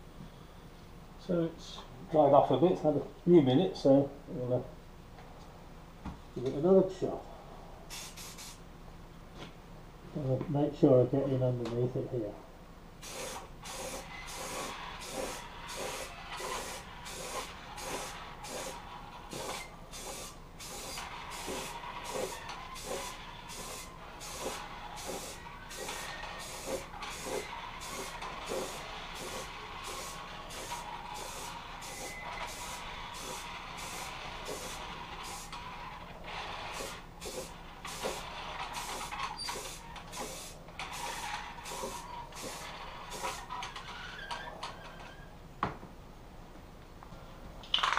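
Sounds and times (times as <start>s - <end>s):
spray can hissing: 7.9s - 8.6s, 13.0s - 35.6s, 36.7s - 43.5s.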